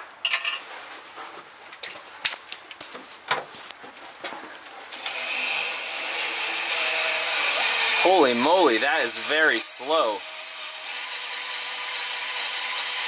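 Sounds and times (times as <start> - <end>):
drill grinding into steel: 4.9 - 13.0.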